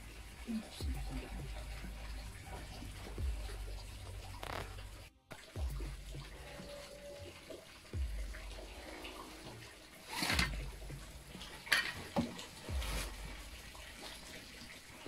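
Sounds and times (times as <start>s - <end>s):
dull low bumps: 0.0s - 6.9s, 8.0s - 9.7s, 10.3s - 11.7s, 12.6s - 14.2s
blanket rustling: 10.0s - 15.0s.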